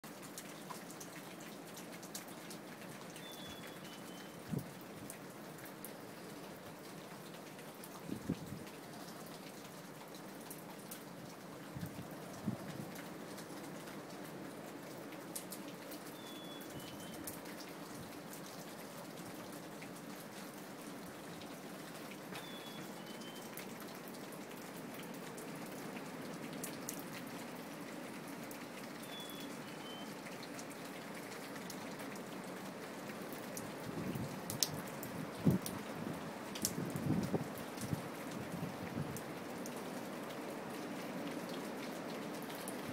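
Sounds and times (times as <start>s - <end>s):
steady rain: 0.0s - 42.9s
low gusts of wind: 8.0s - 9.0s, 11.6s - 13.3s, 33.5s - 42.9s
chickadee whistling song: 16.2s - 17.2s, 29.1s - 30.1s.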